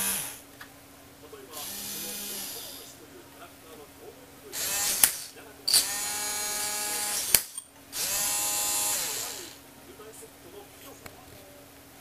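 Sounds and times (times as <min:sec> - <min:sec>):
small geared motors whirring: 0:01.6 - 0:02.9, 0:04.6 - 0:07.4, 0:08.0 - 0:09.6.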